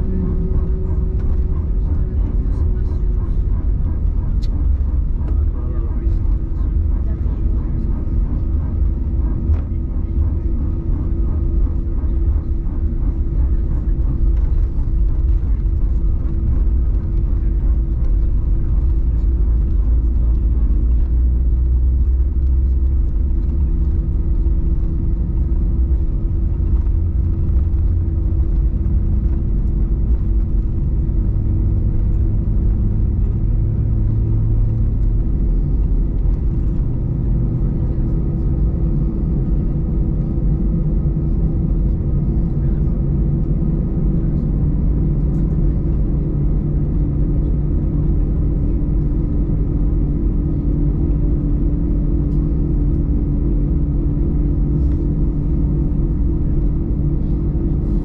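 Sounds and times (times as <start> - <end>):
jet engines humming: 0.0 - 58.0
low cabin rumble: 0.0 - 58.0.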